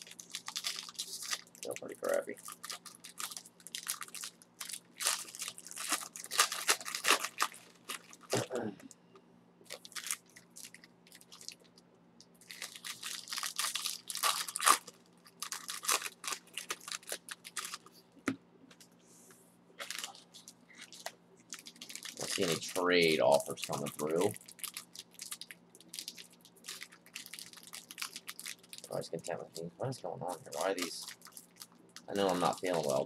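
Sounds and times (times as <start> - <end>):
plastic wrappers tearing and crinkling: 0.0 - 8.5, 9.7 - 11.7, 12.4 - 17.9, 19.8 - 29.5, 30.3 - 33.0
faint steady hum: 0.0 - 33.0.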